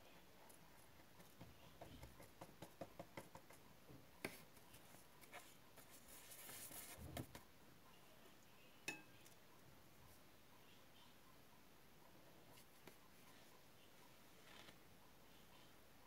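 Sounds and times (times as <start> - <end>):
rustle of hands and paper: 4.2 - 7.5.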